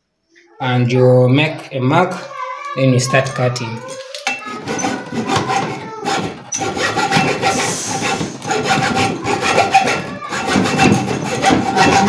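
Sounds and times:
hacksaw cutting wood: 0:04.3 - 0:12.0.

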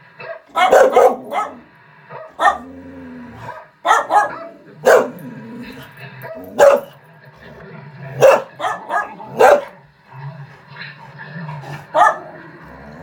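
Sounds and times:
dog barking: 0:00.2 - 0:02.7, 0:03.4 - 0:05.3, 0:06.2 - 0:07.0, 0:08.1 - 0:09.8, 0:11.5 - 0:12.4.

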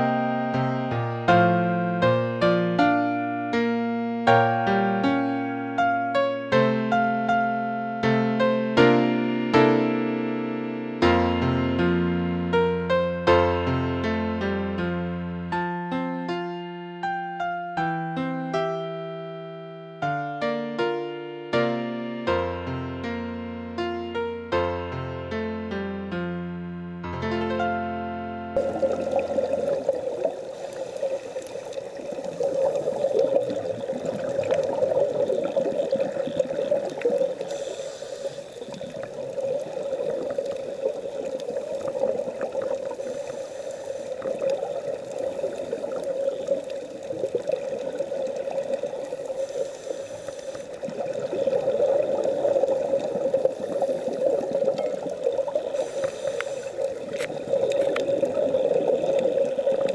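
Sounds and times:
underwater bubbling: 0:28.6 - 0:59.9.

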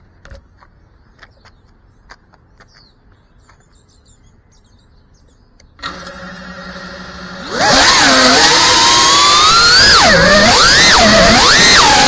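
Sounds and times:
small birds chirping: 0:00.4 - 0:05.8.

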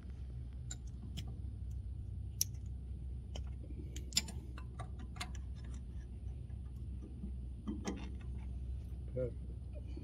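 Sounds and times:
steady low rumble: 0:00.0 - 0:10.0
small metallic clicks and taps: 0:03.3 - 0:08.5.

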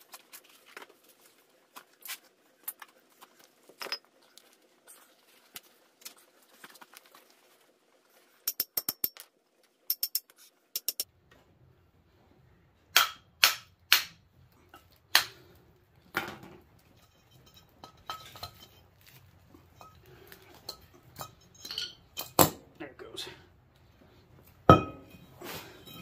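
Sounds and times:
metal parts clinking: 0:19.7 - 0:22.4.

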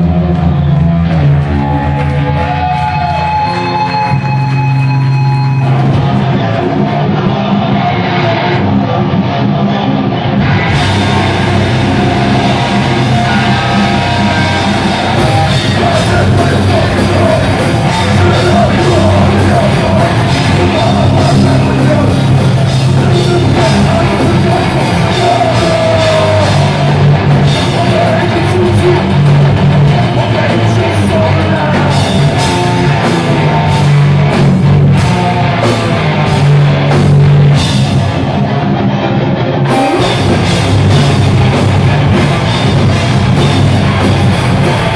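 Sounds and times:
vocals: 0:00.0 - 0:34.9
bass guitar: 0:00.0 - 0:44.9
distorted electric guitars: 0:00.0 - 0:44.9
drums and cymbals: 0:10.4 - 0:38.3, 0:39.7 - 0:44.9.

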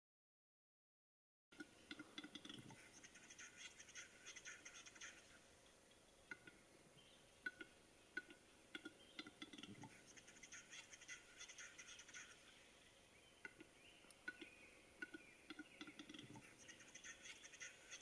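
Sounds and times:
dry bird clicks: 0:01.6 - 0:03.4, 0:05.9 - 0:06.6, 0:07.4 - 0:11.1, 0:13.4 - 0:16.4
bird display song: 0:01.6 - 0:18.0.

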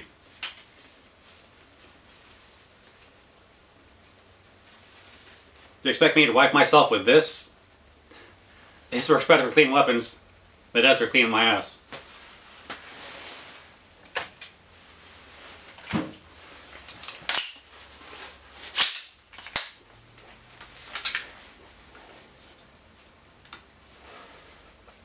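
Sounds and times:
metallic clicks of rifle handling: 0:16.8 - 0:17.6, 0:18.6 - 0:19.8.

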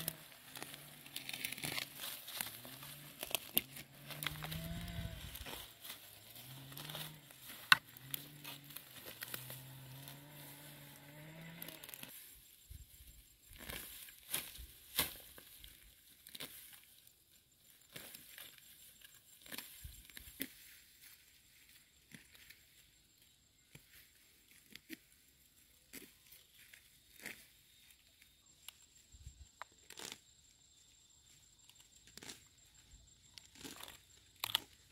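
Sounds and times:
hands tearing weeds: 0:00.0 - 0:12.2, 0:13.5 - 0:16.9, 0:29.7 - 0:30.2.

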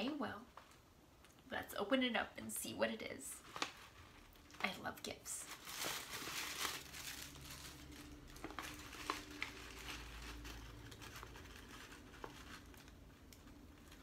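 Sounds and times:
paper rustling and crinkling: 0:03.4 - 0:04.8, 0:05.4 - 0:14.0.

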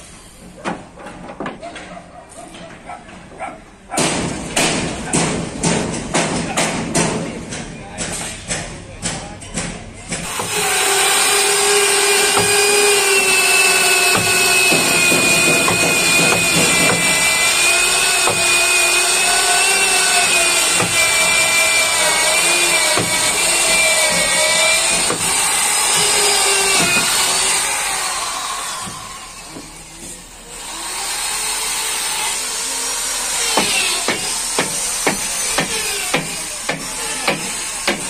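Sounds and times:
electric drill boring into wood: 0:10.2 - 0:38.0.

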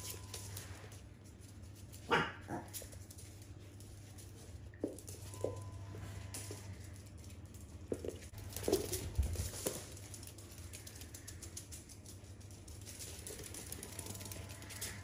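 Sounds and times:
dog claws clicking on floor: 0:06.3 - 0:15.0.

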